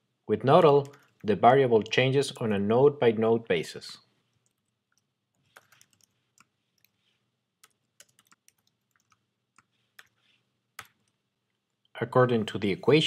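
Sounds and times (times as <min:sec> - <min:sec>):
typing on computer keyboard: 0:00.8 - 0:01.3, 0:04.4 - 0:07.0, 0:07.6 - 0:10.2.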